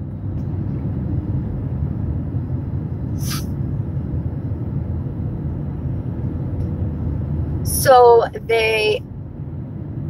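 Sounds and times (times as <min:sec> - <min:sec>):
car engine and tyre rumble: 0:00.0 - 0:10.0
brief hiss: 0:03.2 - 0:03.5.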